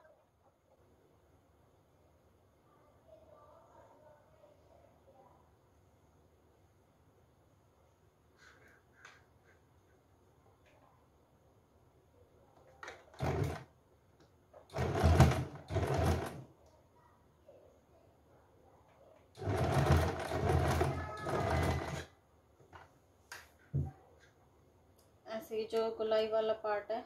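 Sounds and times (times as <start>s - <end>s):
sewing machine stitching: 12.8s - 13.7s, 14.6s - 16.5s, 19.4s - 22.1s.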